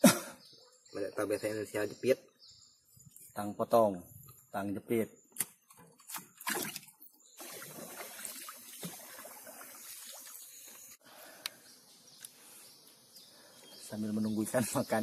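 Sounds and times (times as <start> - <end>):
water sloshing and trickling: 6.0 - 11.0
paddle splashing water: 7.4 - 10.9.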